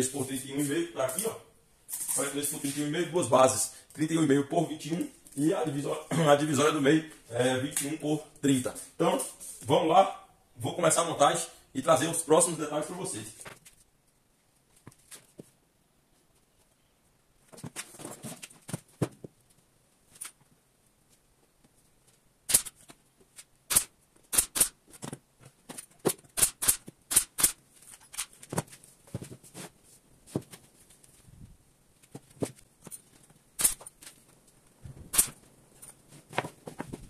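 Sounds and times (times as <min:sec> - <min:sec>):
pin nailer snaps: 0:22.5 - 0:22.8, 0:23.7 - 0:24.8, 0:26.3 - 0:27.6, 0:35.1 - 0:35.4.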